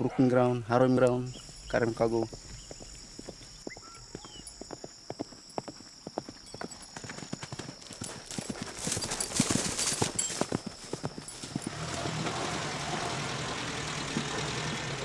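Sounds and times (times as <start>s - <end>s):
horse hoofbeats on dirt: 1.4s - 13.2s.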